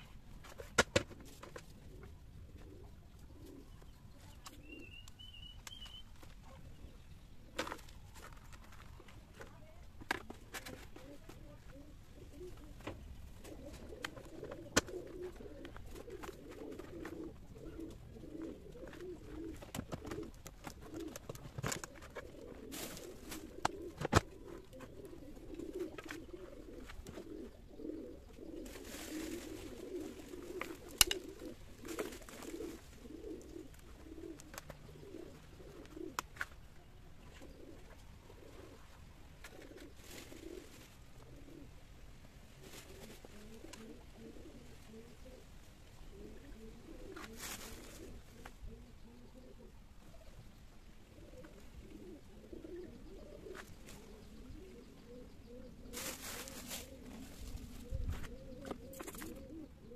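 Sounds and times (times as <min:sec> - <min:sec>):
doves cooing: 0:00.0 - 0:59.9
clicks and taps on plastic pot: 0:31.0 - 0:31.2.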